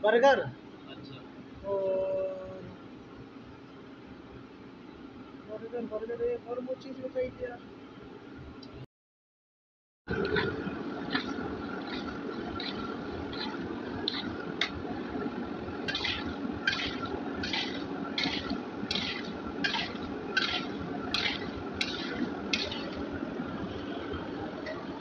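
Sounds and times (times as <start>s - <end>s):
oil sizzling: 10.1s - 24.3s
ladle sweeping through oil: 10.2s - 23.2s.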